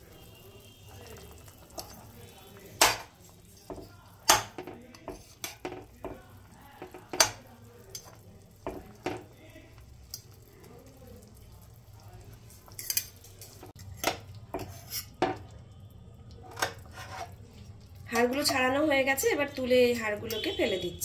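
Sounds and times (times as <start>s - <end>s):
metal utensils scraping a pot: 4.6s - 6.0s, 12.5s - 15.5s, 16.4s - 18.8s.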